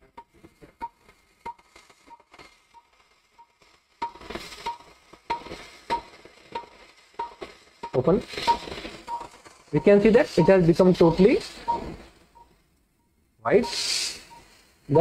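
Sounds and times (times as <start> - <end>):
short electronic beeps: 7.2 - 15.0.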